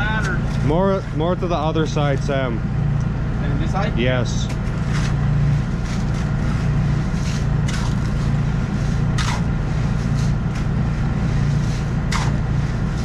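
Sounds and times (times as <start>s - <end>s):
engine running: 0.0s - 13.0s
shovel digging into wet gravel: 5.8s - 13.0s.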